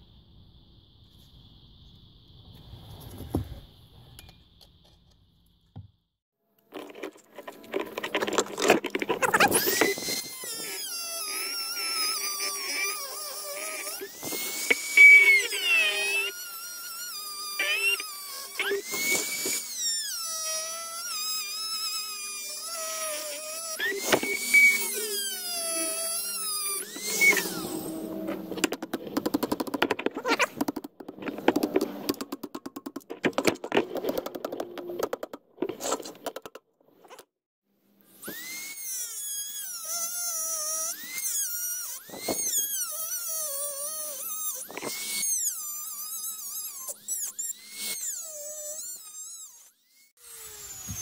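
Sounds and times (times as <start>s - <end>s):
rotary tool whining: 6.6s - 36.3s, 38.1s - 51.0s
disc grinding rasp on metal: 7.1s - 29.2s.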